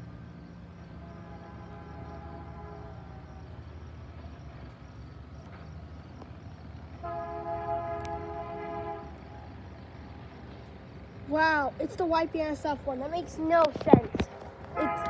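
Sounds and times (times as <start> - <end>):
low steady rumble: 0.0 - 15.0
locomotive horn chord: 1.0 - 3.4, 7.0 - 9.2, 14.7 - 15.0.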